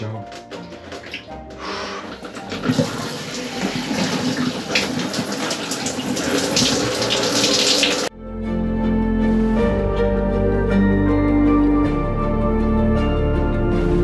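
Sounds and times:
soft background music: 0:00.0 - 0:14.0
shower water spraying: 0:01.0 - 0:08.1.

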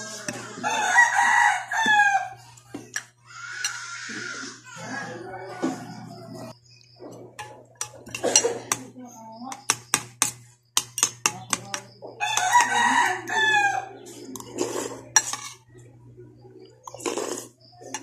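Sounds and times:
rooster crowing: 0:00.0 - 0:02.5, 0:03.3 - 0:06.6, 0:12.1 - 0:14.1
cutlery clinking against bowl: 0:02.8 - 0:03.8, 0:07.1 - 0:08.9, 0:09.6 - 0:12.8, 0:14.3 - 0:15.6, 0:16.8 - 0:18.0.

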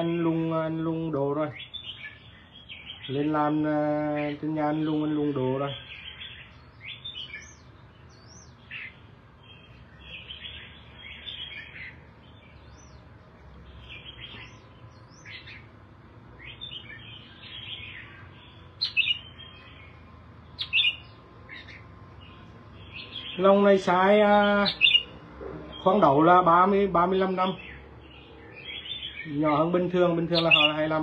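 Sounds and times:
bird chirping song: 0:00.0 - 0:31.0
sharp bird calls: 0:00.0 - 0:31.0.

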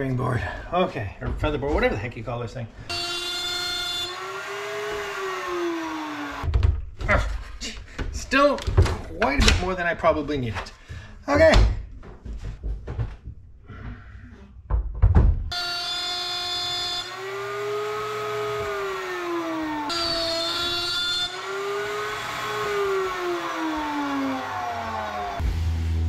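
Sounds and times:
wooden board knocks and thuds: 0:06.4 - 0:07.4, 0:11.4 - 0:13.4, 0:14.7 - 0:15.5.

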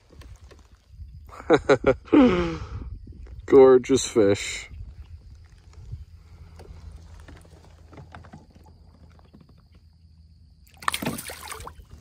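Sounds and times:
low steady rumble: 0:04.6 - 0:10.7
small water splashes: 0:10.6 - 0:12.0.

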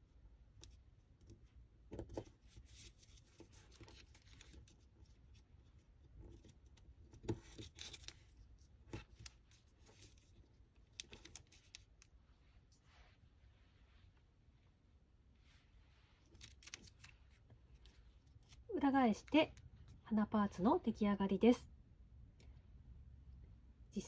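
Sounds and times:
paper rustling and crinkling: 0:02.1 - 0:05.4, 0:06.2 - 0:12.1, 0:16.0 - 0:18.7.

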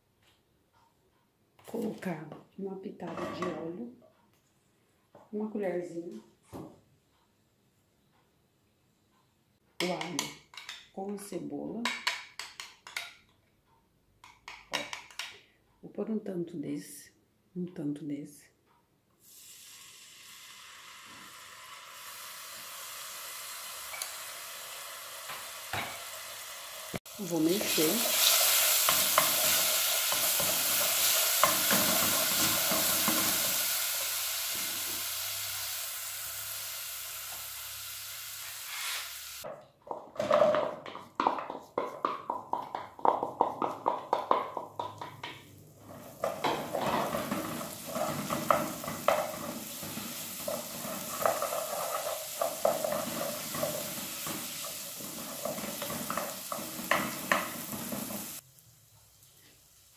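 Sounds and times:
garlic sizzling in hot oil: 0:19.2 - 0:39.5, 0:45.8 - 0:59.9
onion sizzling in pot: 0:19.2 - 0:39.5, 0:41.2 - 0:59.9
wooden spoon scraping pot: 0:45.8 - 0:58.4.

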